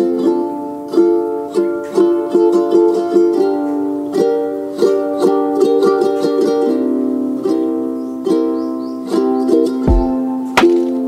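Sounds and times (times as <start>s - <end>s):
plucked string tune: 0.0s - 11.0s.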